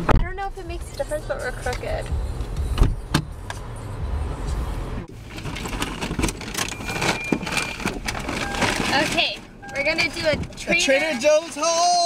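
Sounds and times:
car interior engine rumble: 0.0s - 12.0s
plastic bags crinkling: 5.1s - 9.4s.

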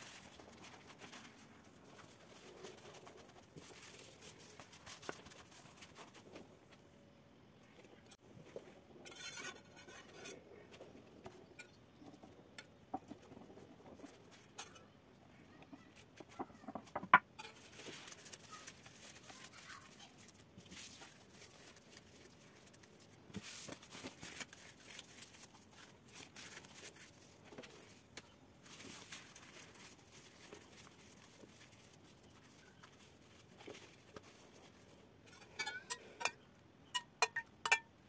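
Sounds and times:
pastry sheets crinkling: 0.0s - 6.7s, 15.7s - 35.1s.

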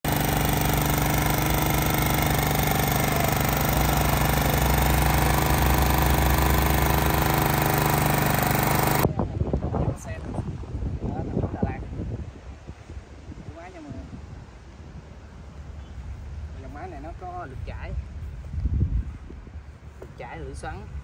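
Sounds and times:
reel mower engine running: 0.0s - 9.1s
faint wind noise: 8.4s - 21.0s.

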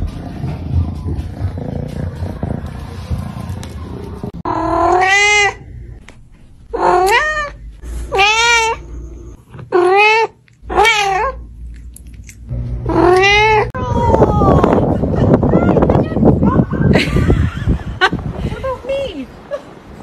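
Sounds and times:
cat meowing: 4.5s - 5.6s, 6.8s - 8.9s, 9.7s - 11.4s, 12.9s - 13.7s.

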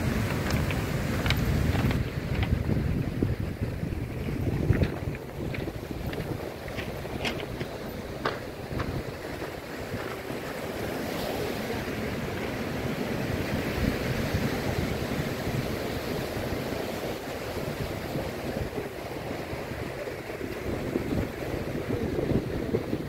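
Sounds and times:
surf breaking on cobble beach: 0.0s - 23.0s
wind rumbling on microphone: 0.0s - 23.0s.

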